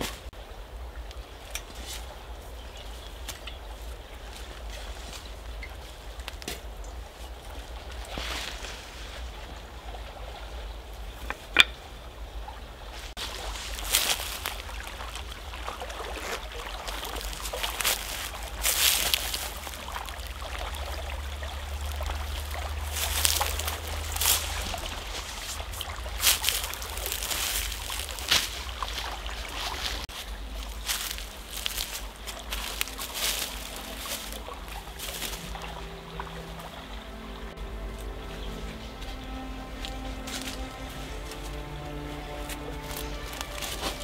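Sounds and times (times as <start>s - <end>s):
stream trickling: 0.0s - 44.0s.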